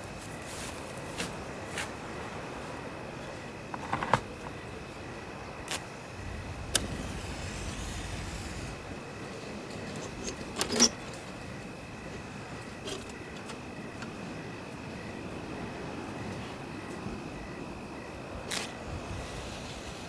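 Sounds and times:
steady low hiss: 0.0s - 20.0s
low rumble: 6.1s - 9.7s.

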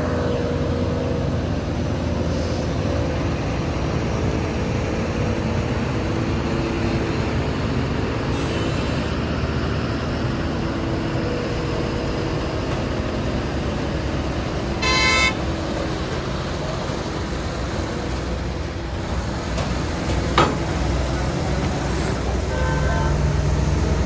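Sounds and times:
truck diesel engine running: 0.0s - 24.0s
vehicle horn blast: 14.8s - 15.4s.

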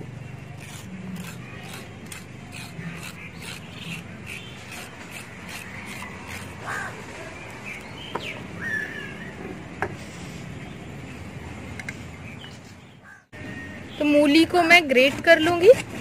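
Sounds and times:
knife scraping radish skin: 0.6s - 6.7s.

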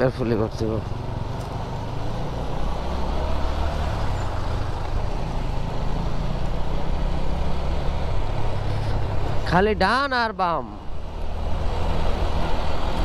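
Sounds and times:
wind and road noise: 0.0s - 13.0s
motorcycle engine running: 0.4s - 3.2s.

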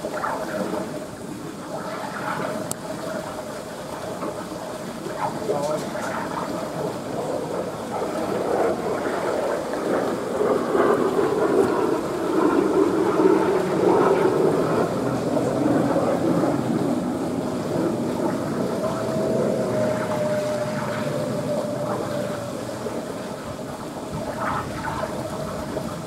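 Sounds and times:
running water rushing: 0.0s - 26.0s
thin steady tone: 0.0s - 26.0s.

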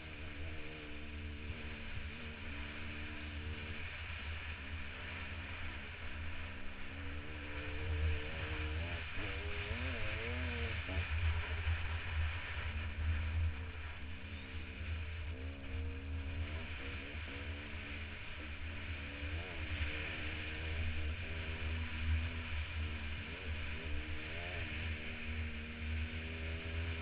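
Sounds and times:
dirt bike engine revving: 0.0s - 27.0s.

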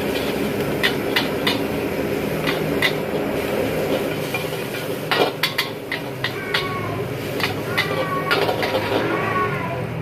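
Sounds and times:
metal spatula clanking on wok: 0.0s - 1.8s, 2.4s - 3.2s, 3.8s - 9.2s
gas burner rushing: 0.0s - 10.0s
noodles sizzling: 0.0s - 10.0s.

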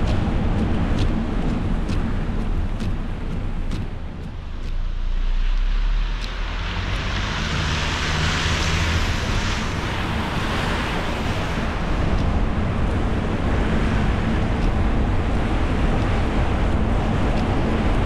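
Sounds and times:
road and engine rumble: 0.0s - 18.0s
tyres hissing on wet road: 4.8s - 18.0s.

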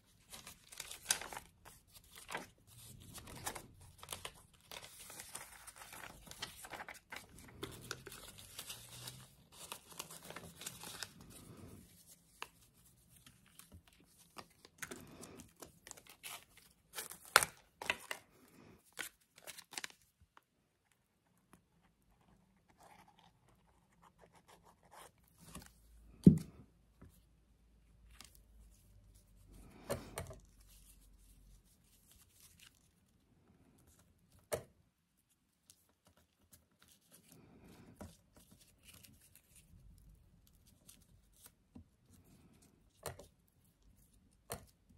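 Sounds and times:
paper pages rustling: 0.0s - 20.1s.

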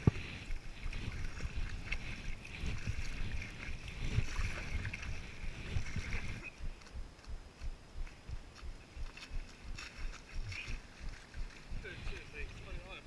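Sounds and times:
paddle strokes in water: 0.0s - 13.0s
water splashing and lapping: 0.0s - 13.0s
low thuds: 2.7s - 12.8s.

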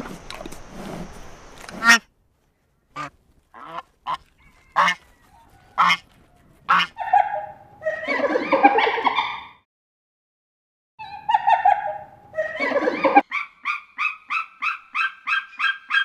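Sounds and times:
geese honking: 3.0s - 6.1s, 6.7s - 9.5s.

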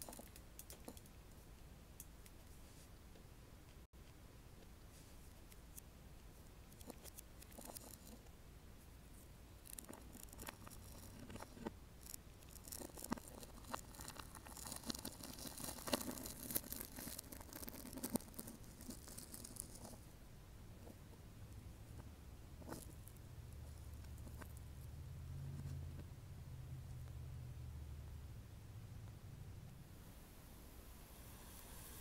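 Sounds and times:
plastic beads clicking and rustling: 9.6s - 20.0s.

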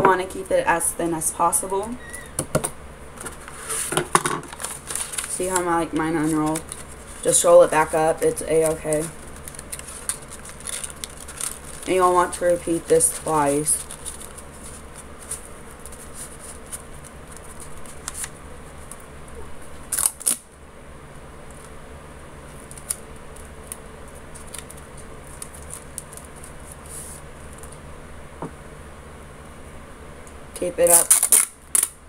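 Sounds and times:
steady low hum: 0.0s - 32.0s
paper rustling: 3.2s - 19.0s, 22.5s - 27.8s.

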